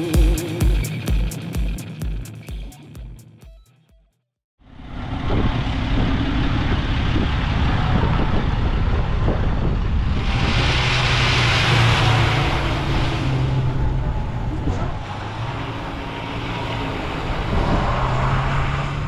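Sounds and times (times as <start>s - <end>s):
truck engines driving past: 4.6s - 19.0s.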